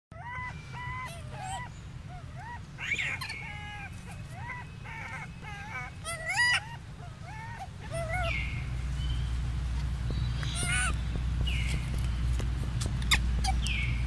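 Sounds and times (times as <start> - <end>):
baby monkey harsh cry: 0.1 - 8.7, 10.4 - 11.0, 13.0 - 13.9
baby monkey high calls: 0.1 - 9.4, 10.2 - 14.0.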